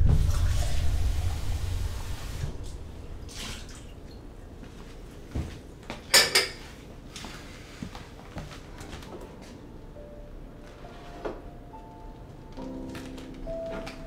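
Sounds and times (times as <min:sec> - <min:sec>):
dishes clinking: 0:06.0 - 0:06.7.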